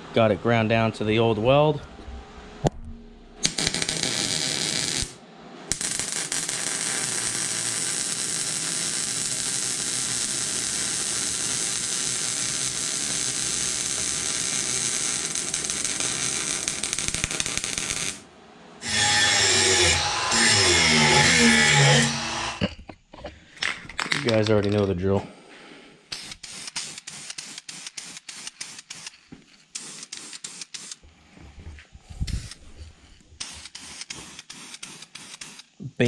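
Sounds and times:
welding arc crackling: 3.4 - 18.2, 18.8 - 22.6, 26.1 - 29.1, 33.4 - 35.7.

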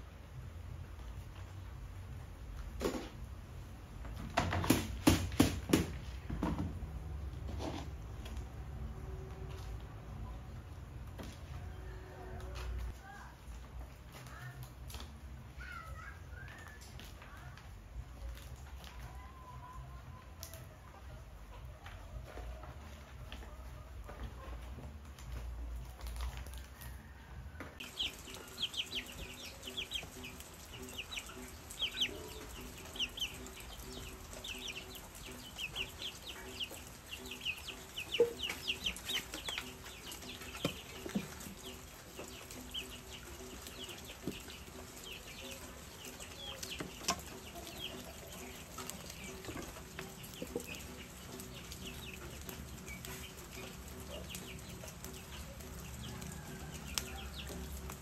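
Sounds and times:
birds chirping: 27.8 - 58.0.

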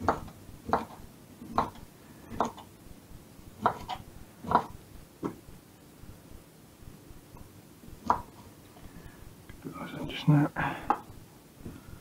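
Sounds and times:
knife cutting broccoli on board: 0.0 - 2.7, 3.6 - 5.4.

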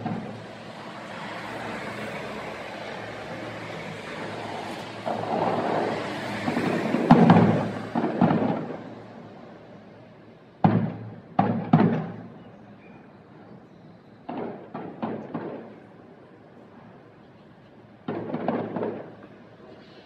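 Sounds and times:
fireworks bursting: 0.0 - 2.3, 3.0 - 9.5, 10.6 - 20.0
sharp bangs with echoing tails: 5.0 - 9.0, 10.6 - 12.4, 14.3 - 15.8, 18.0 - 19.2.

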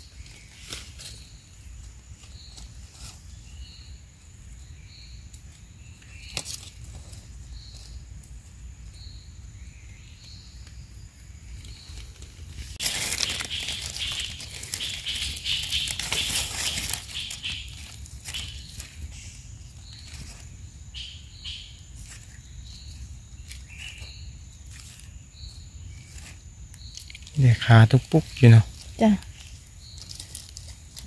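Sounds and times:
dry leaves rustling and crackling: 11.5 - 31.0.

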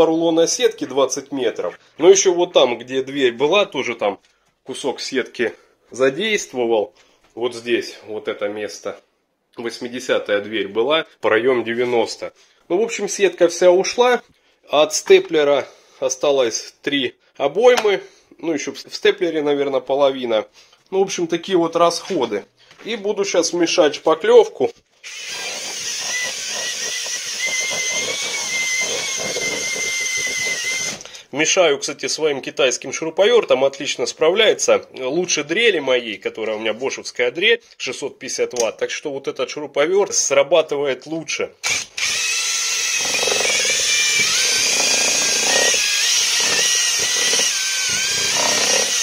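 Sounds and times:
drill motor whining: 25.0 - 31.1, 41.6 - 49.0
paddle churning thick putty: 25.1 - 31.1, 42.0 - 49.0
paddle churning wet putty: 25.1 - 31.1.

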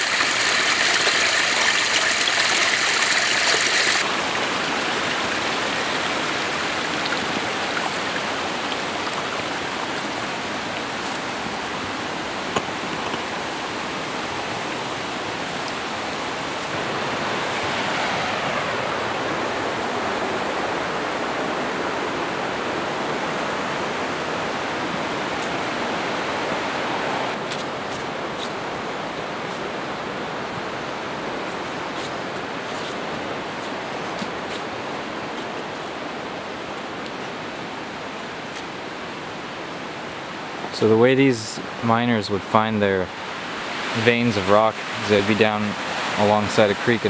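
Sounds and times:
waterfall splashing into pool: 0.0 - 13.9
creek rushing: 0.0 - 47.0.

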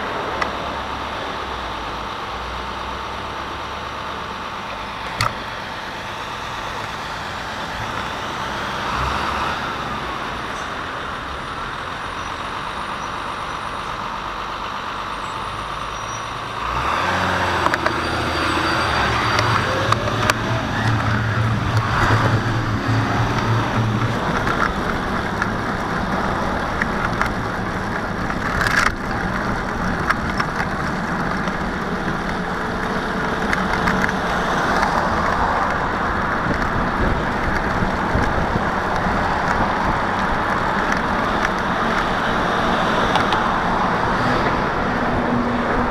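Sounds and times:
road traffic noise: 0.0 - 45.9
truck diesel engine humming: 0.0 - 45.9
wind rushing over camera: 19.0 - 45.9.

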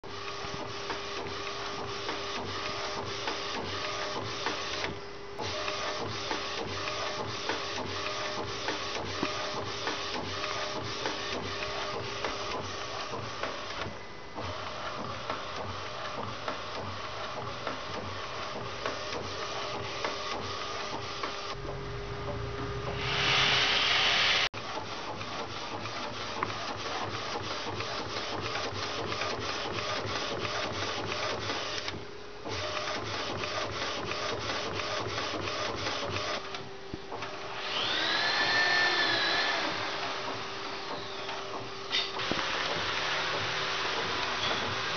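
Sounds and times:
printer carriage ticking and humming: 0.0 - 23.0, 24.6 - 37.6, 38.6 - 44.9
loud rushing noise: 21.6 - 24.5.

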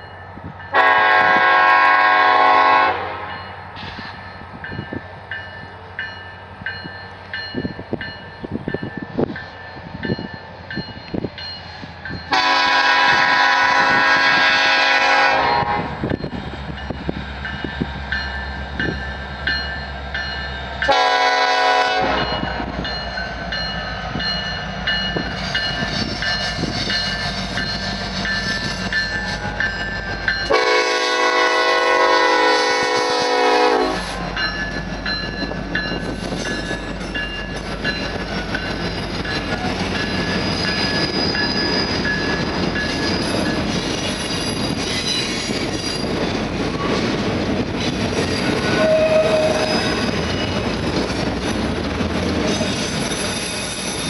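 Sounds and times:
train air horn blasts: 0.7 - 3.3, 12.3 - 16.0, 20.9 - 22.7, 30.5 - 34.2, 48.6 - 49.9
train wheels clattering on rails: 3.4 - 54.0.

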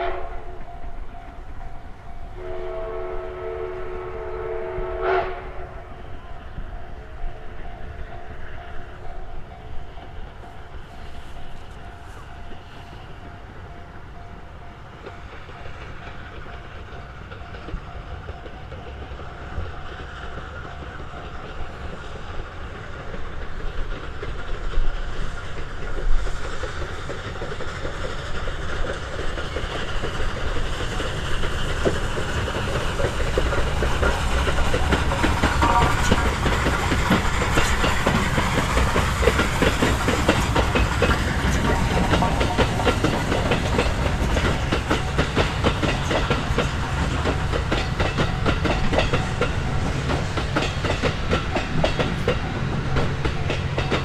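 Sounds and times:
steam locomotive approaching: 0.0 - 54.0
wheels clattering over rails: 14.6 - 54.0.

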